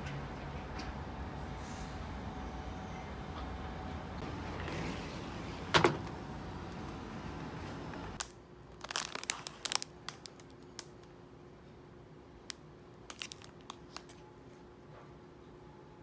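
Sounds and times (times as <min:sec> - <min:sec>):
background hum: 0:00.0 - 0:16.0
plastic bag crinkling: 0:08.2 - 0:11.1, 0:13.0 - 0:14.2.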